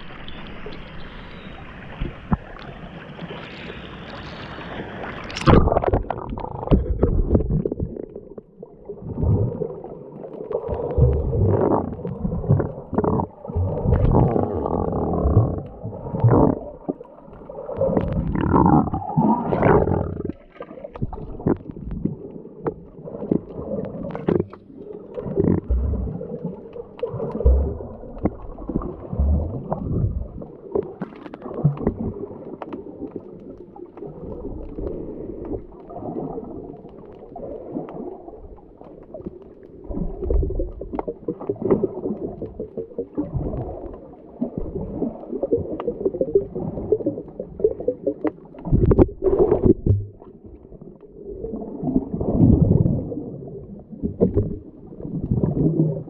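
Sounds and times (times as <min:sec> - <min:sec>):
underwater gurgling and bubbling: 0:00.0 - 0:56.0.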